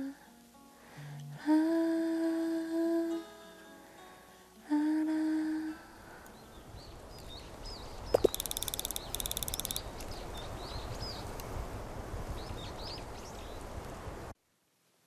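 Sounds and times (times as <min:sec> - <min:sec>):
small birds chirping: 0:06.1 - 0:11.6, 0:12.3 - 0:14.0
fast chattering bird call: 0:08.1 - 0:09.9.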